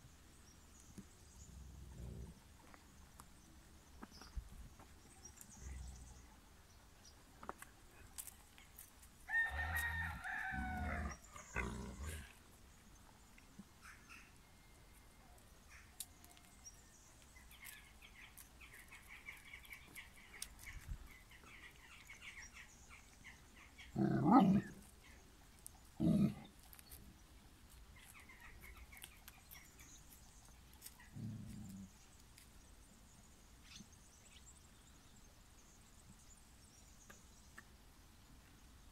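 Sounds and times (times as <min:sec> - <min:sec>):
rooster crowing: 0:09.3 - 0:11.2.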